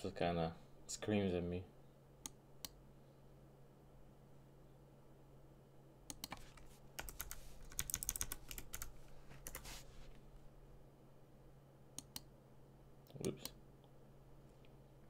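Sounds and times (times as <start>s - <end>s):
typing on computer keyboard: 6.1s - 9.6s.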